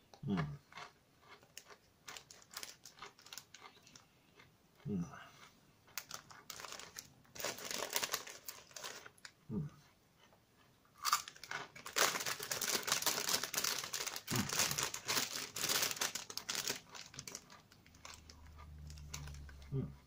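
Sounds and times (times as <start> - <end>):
snack packet crunching and rustling: 0.7 - 4.5, 5.9 - 9.4, 11.0 - 19.7.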